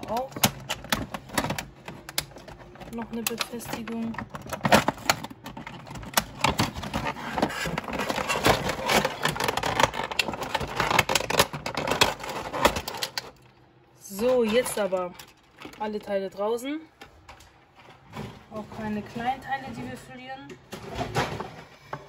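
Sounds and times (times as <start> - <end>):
plastic blister tray crackling: 0.0 - 16.4.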